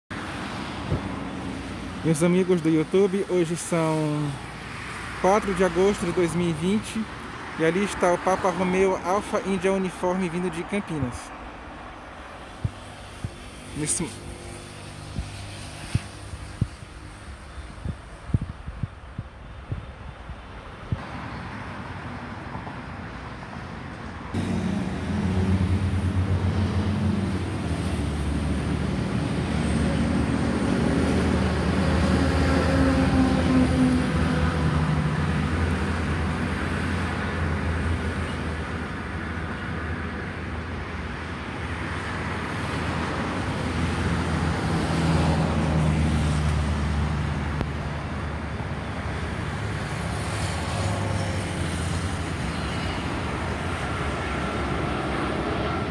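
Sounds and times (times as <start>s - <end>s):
low engine drone: 24.3s - 35.6s.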